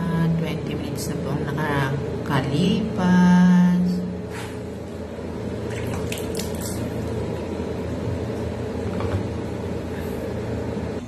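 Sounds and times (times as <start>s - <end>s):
water splashing: 5.6s - 7.2s
tap water running into sink: 5.7s - 7.2s.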